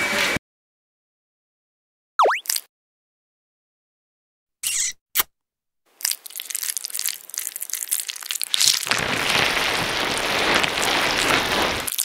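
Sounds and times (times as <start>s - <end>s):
crackling crunching noise: 6.0s - 12.0s.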